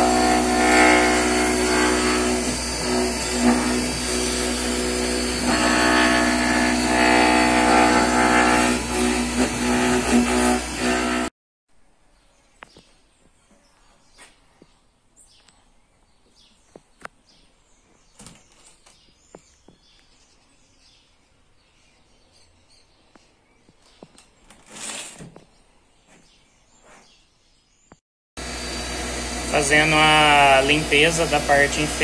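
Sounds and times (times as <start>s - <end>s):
rustle or scrape: 24.5s - 25.4s.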